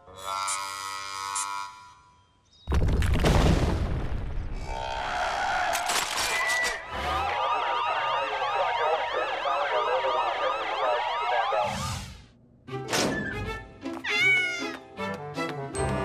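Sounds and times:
police sirens wailing: 0:05.7 - 0:11.8.

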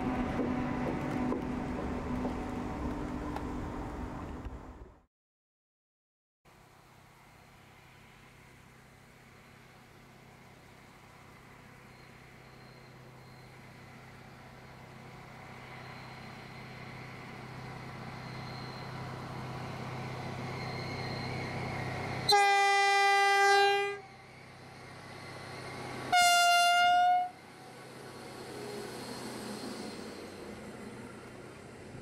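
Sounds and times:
horn blasts: 0:22.3 - 0:24.1, 0:26.1 - 0:27.4.

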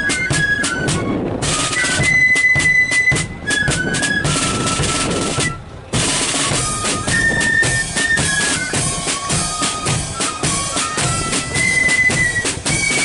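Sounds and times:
cymbals: 0:00.0 - 0:13.0
flutes playing melody: 0:00.0 - 0:13.0
snare drums: 0:00.0 - 0:13.0.

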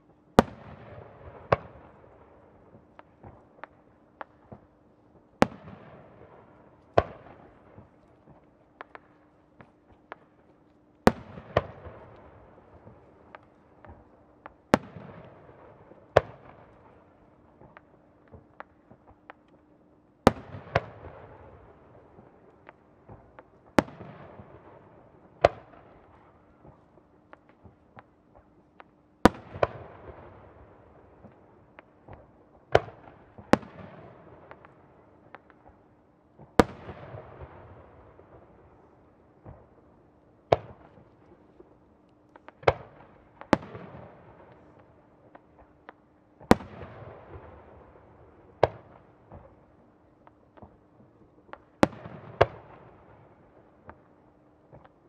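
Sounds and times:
faint firework pops: 0:02.7 - 0:04.8, 0:05.4 - 0:19.7, 0:20.3 - 0:24.7, 0:25.4 - 0:35.8, 0:39.4 - 0:39.8, 0:40.5 - 0:47.6, 0:48.5 - 0:49.6, 0:50.2 - 0:53.2, 0:53.8 - 0:55.0.

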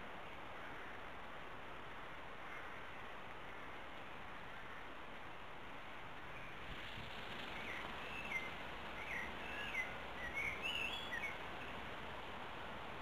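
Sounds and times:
steady background hiss: 0:00.0 - 0:13.0
small songbird chirping: 0:07.5 - 0:11.8.

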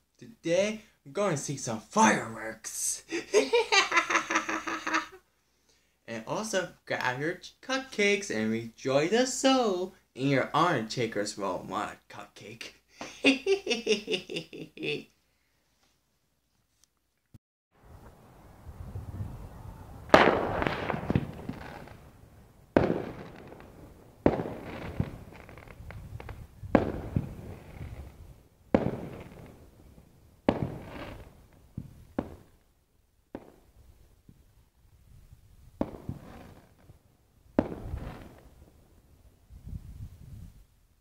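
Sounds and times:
firework crackle: 0:17.8 - 0:32.7, 0:33.3 - 0:34.4, 0:35.1 - 0:39.5
firework bangs: 0:18.0 - 0:32.6, 0:33.3 - 0:33.9, 0:35.7 - 0:39.0.

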